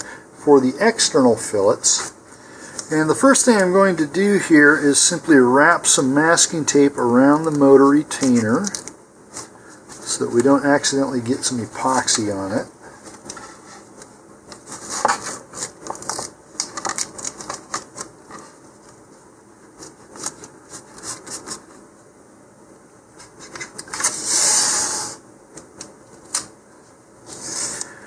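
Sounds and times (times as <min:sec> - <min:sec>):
masking tape crackling: 0:05.9 - 0:19.1.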